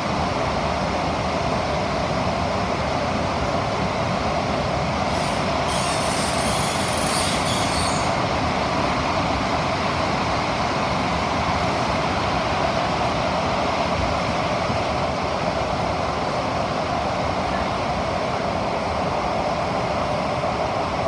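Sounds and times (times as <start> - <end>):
train wheels rumbling on rail: 0.0 - 21.0
high hiss: 5.1 - 8.2.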